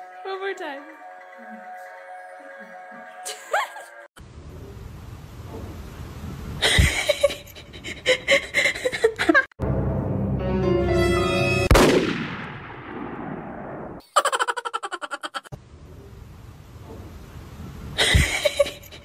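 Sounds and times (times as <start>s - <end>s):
music: 0.0s - 4.1s, 9.6s - 11.7s
gunshot bang: 11.7s - 13.9s.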